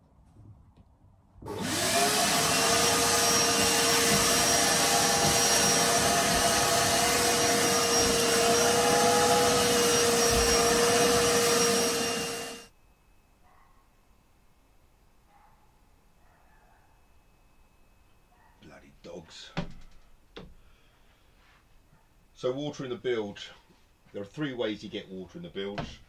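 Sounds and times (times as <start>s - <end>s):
wet vac motor and suction: 1.5s - 12.7s.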